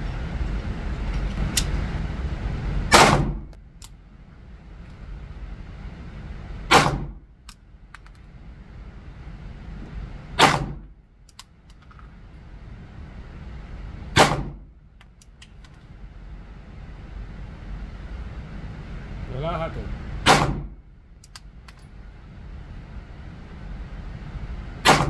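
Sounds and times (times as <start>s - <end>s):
pistol shots echoing indoors: 2.9s - 3.5s, 6.7s - 7.2s, 10.4s - 10.9s, 14.1s - 14.6s, 20.2s - 20.7s.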